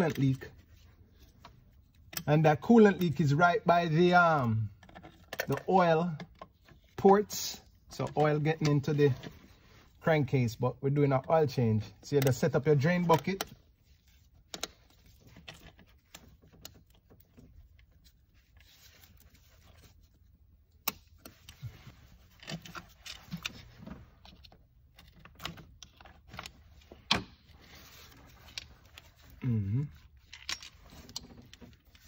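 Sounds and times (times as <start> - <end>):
clicks and rattles of parts: 4.4 - 9.6, 11.9 - 32.0
person humming: 29.4 - 30.0.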